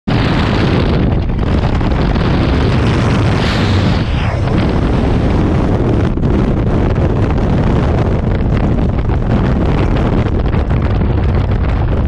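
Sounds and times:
loud wind rushing over microphone: 0.1 - 12.0
swoosh: 2.5 - 6.2.

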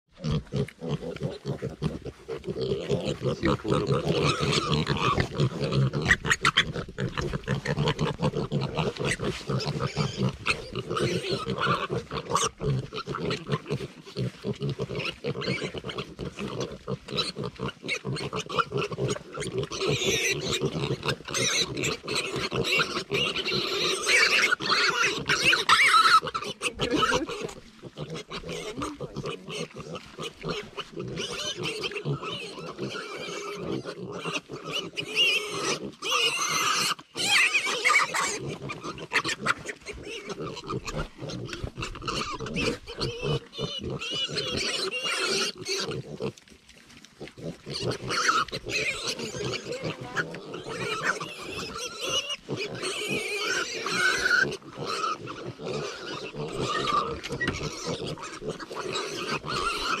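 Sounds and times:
farm animals calling: 0.1 - 60.0.

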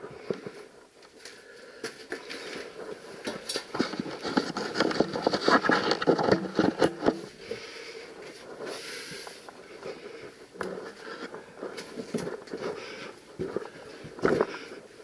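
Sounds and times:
clothing rubbing against rock: 2.2 - 7.4.

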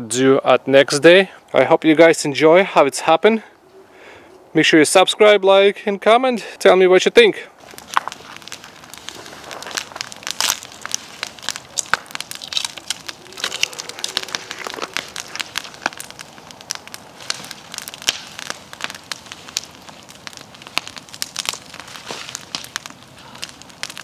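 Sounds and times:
wood fire crackling: 6.4 - 24.0.

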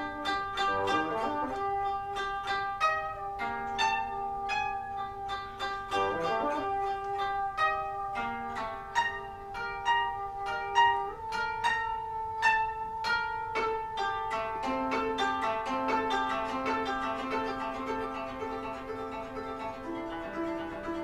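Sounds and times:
bassoon holding long notes: 0.0 - 14.7
koto plucked notes: 0.0 - 21.0.

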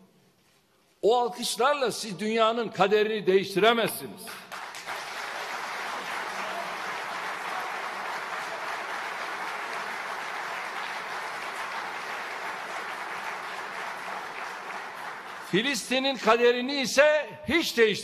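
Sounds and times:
audience applauding: 4.3 - 16.4.

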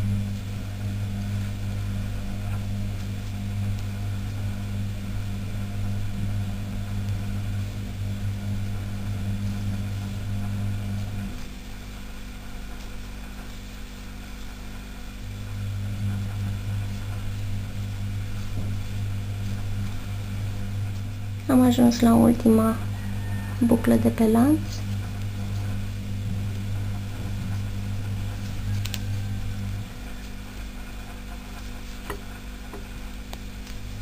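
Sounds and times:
low droning hum: 0.0 - 34.0.

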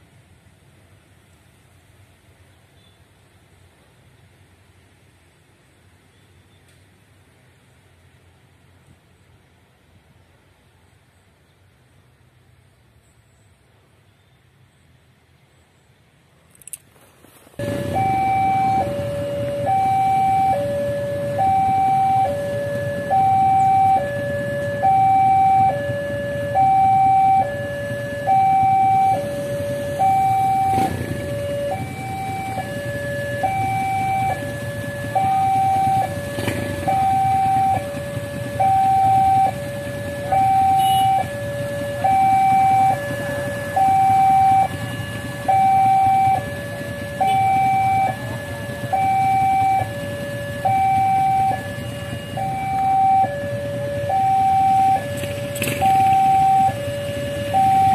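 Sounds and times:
motorcycles idling: 17.3 - 57.9
two-tone crossing alarm: 17.6 - 57.9.

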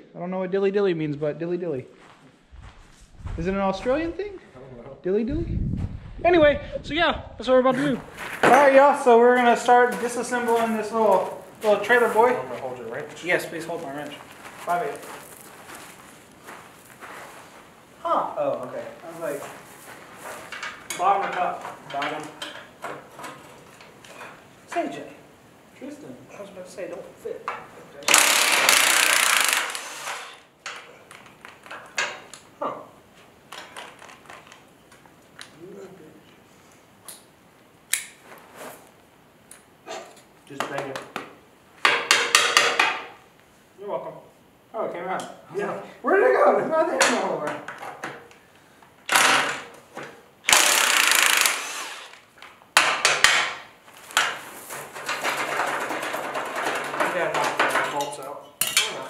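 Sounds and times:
sharp metal clicks: 28.0 - 30.8
impact driver hammering: 28.1 - 30.4, 50.5 - 52.2, 52.8 - 53.6.

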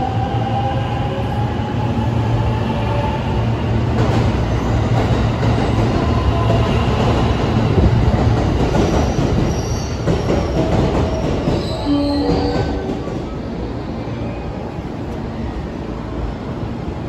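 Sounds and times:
electric train rolling past: 0.0 - 17.0
high-pitched train squeals: 8.5 - 15.9.

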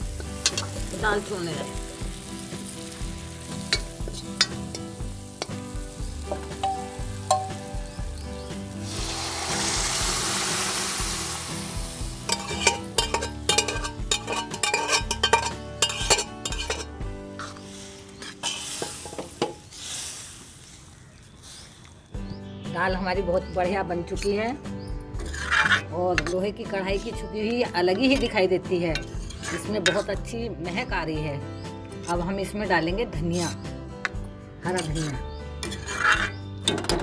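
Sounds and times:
spices sizzling in oil: 0.0 - 23.1, 24.1 - 37.0
ladle clinking and scraping pan: 0.4 - 0.8, 6.3 - 7.6, 12.2 - 17.6, 18.2 - 19.7, 25.2 - 27.1, 28.9 - 30.2, 34.8 - 37.0
loud hiss of steam: 8.8 - 12.2, 18.6 - 20.8.

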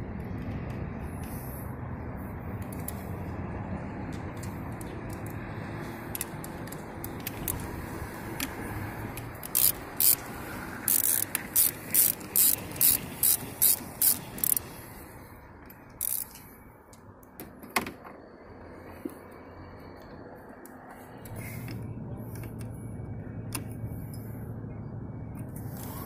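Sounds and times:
ratchet wrench clicking: 8.4 - 14.7, 15.6 - 16.5.

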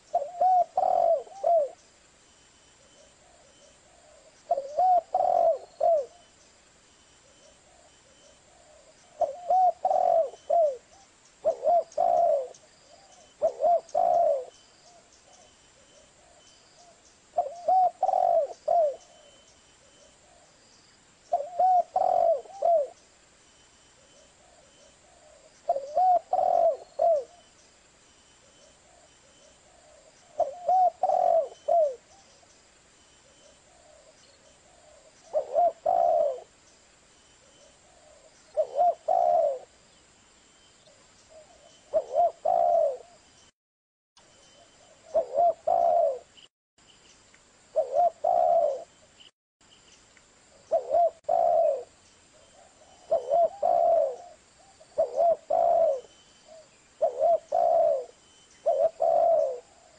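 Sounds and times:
dove cooing: 0.0 - 1.8, 2.8 - 6.3, 7.2 - 20.6, 21.3 - 23.0, 24.0 - 27.5, 28.5 - 32.3, 33.2 - 36.6, 37.4 - 39.8, 40.8 - 43.2, 44.6 - 46.3, 47.7 - 48.9, 50.6 - 59.9.

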